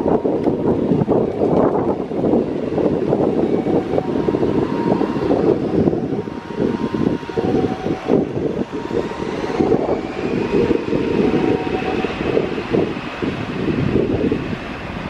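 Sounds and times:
high engine whine: 0:00.0 - 0:15.0
jet engine rumble: 0:00.0 - 0:15.0.

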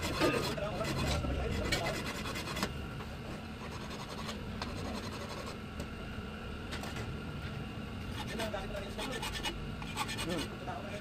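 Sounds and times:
hand file scraping metal: 0:00.0 - 0:02.7, 0:03.6 - 0:05.6, 0:08.1 - 0:10.6.

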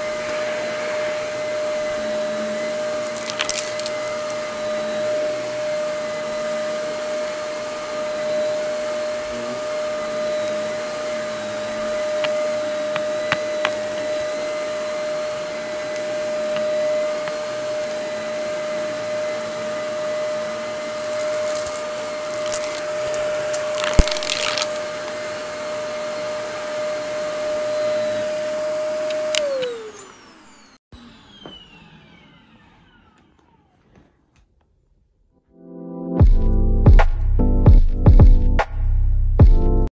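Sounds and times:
motor spinning down: 0:00.0 - 0:34.1
vacuum cleaner running: 0:00.0 - 0:34.4
crackling: 0:02.9 - 0:04.5, 0:20.9 - 0:24.9.

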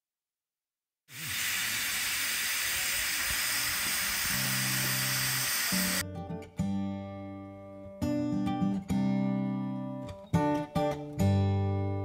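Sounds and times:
steam hissing: 0:01.1 - 0:06.0.

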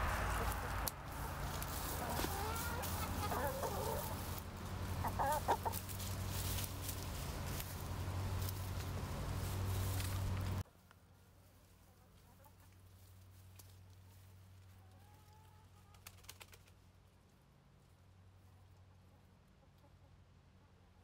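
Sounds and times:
low steady hum: 0:00.0 - 0:11.9
hens clucking softly: 0:01.9 - 0:06.0, 0:18.9 - 0:21.0.

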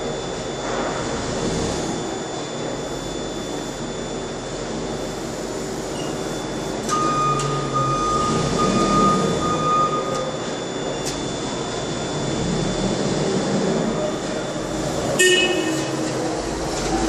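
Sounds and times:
machinery hum: 0:00.0 - 0:17.0
electronic beep in long pulses: 0:02.0 - 0:13.0.

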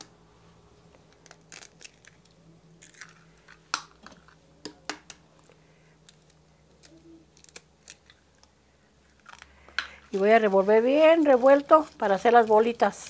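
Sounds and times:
eggshells tapped and cracking: 0:01.1 - 0:05.2.

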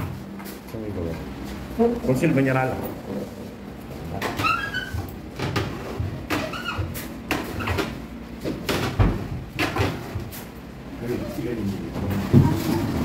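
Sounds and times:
sliding door knocks and clacks: 0:04.2 - 0:10.4.

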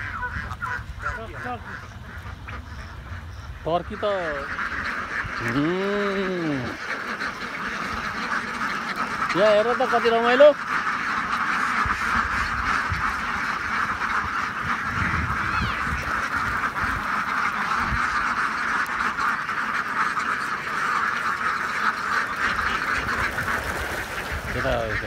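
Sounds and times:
ducks quacking: 0:00.0 - 0:25.0.

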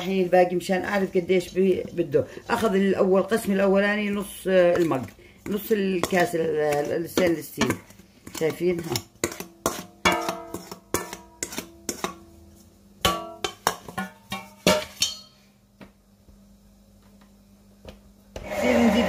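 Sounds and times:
metal cup knocking steel bowl: 0:10.0 - 0:11.3, 0:13.0 - 0:15.3.

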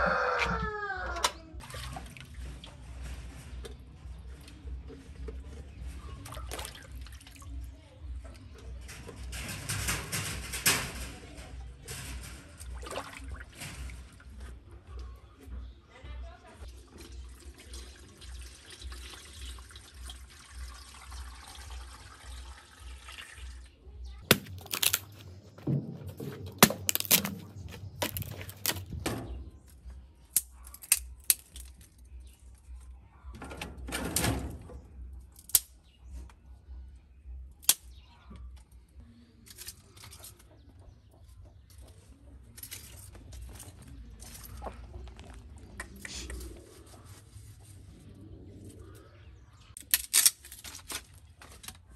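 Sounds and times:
water pouring into metal pot: 0:16.7 - 0:23.7
dry sticks snapping: 0:24.3 - 0:25.3, 0:26.6 - 0:28.9, 0:35.4 - 0:35.8.

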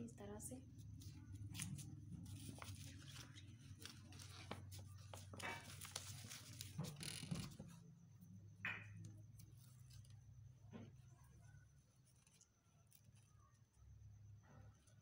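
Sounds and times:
paper crinkles: 0:00.9 - 0:07.7
card paper rustling and tapping: 0:01.0 - 0:07.7.

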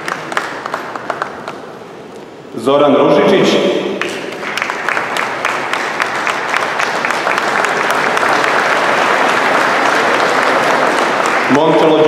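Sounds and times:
audience applauding: 0:00.0 - 0:01.8, 0:04.0 - 0:12.0.

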